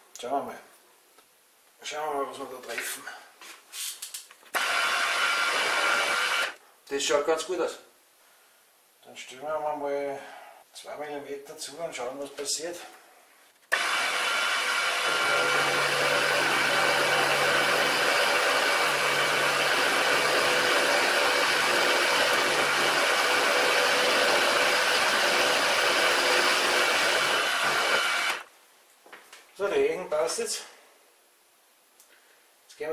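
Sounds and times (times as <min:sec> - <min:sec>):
milling machine cutting aluminium: 0:13.7 - 0:28.4.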